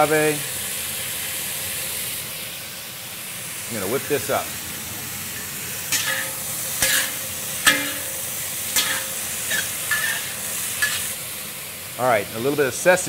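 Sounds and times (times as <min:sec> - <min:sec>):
vegetables sizzling in wok: 0:00.0 - 0:13.0
spatula scraping and clanking wok: 0:05.3 - 0:11.6.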